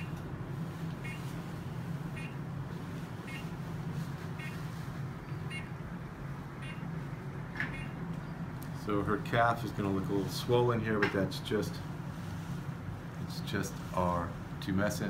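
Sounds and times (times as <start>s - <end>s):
infusion pump humming: 0.0s - 15.0s
short electronic beeps: 1.0s - 1.3s, 3.3s - 3.5s, 5.5s - 5.8s, 6.6s - 6.8s.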